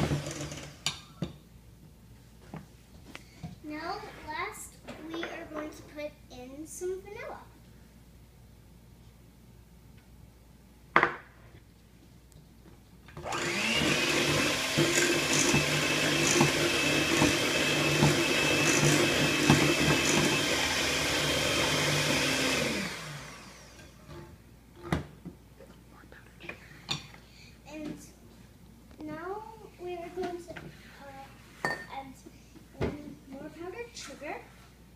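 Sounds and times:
electric hand mixer whine: 0:00.0 - 0:00.8, 0:13.2 - 0:24.2.

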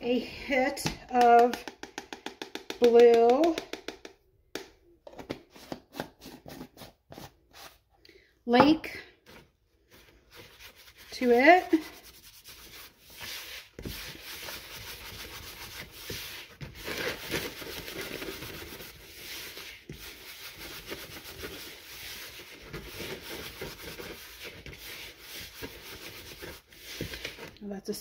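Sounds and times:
hands scratching powder in plastic bowl: 0:09.9 - 0:27.6.

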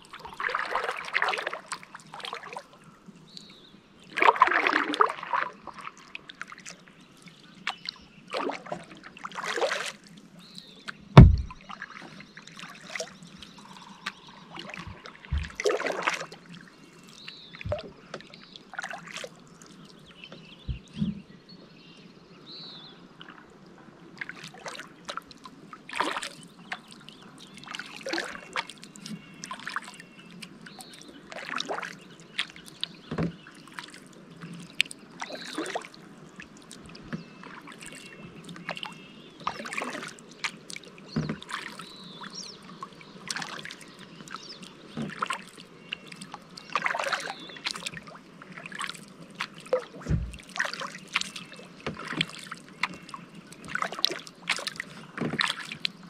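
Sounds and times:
paddle splashing in water: 0:00.0 - 0:03.4, 0:04.0 - 0:21.3, 0:24.2 - 0:56.0
low knock: 0:11.2 - 0:11.6, 0:20.7 - 0:21.2, 0:50.1 - 0:50.4.

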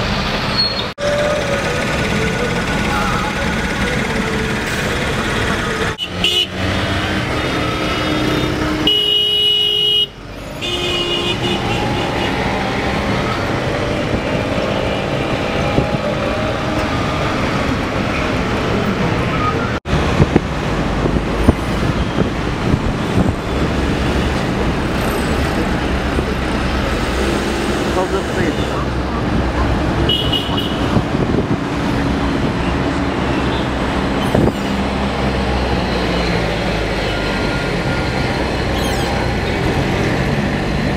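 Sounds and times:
road traffic from inside car: 0:00.0 - 0:40.9
vehicle horns honking: 0:06.0 - 0:06.6, 0:08.0 - 0:12.4, 0:30.0 - 0:31.0.

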